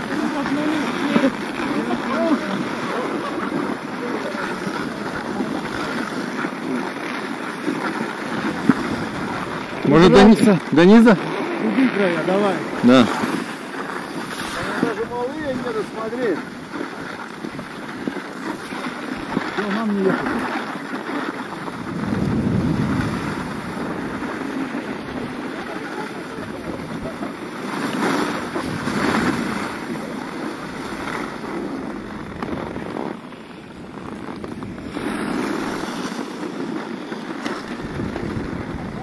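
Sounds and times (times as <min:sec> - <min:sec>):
wind buffeting microphone: 0:00.0 - 0:06.8, 0:07.4 - 0:39.0
skis scraping over snow: 0:00.0 - 0:39.0.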